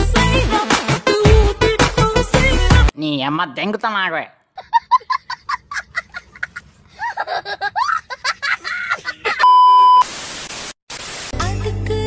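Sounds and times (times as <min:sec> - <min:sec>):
tv static hiss: 0:09.7 - 0:11.4.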